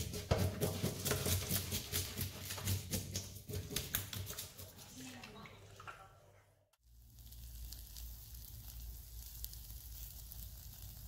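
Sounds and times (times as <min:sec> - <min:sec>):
fish sizzling on charcoal grill: 0:06.8 - 0:11.0.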